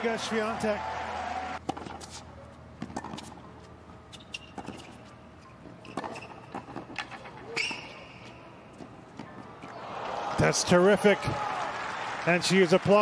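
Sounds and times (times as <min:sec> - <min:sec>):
ball bouncing: 0:01.6 - 0:02.2, 0:02.8 - 0:03.4
rackets striking tennis ball: 0:01.6 - 0:03.5, 0:04.1 - 0:09.7.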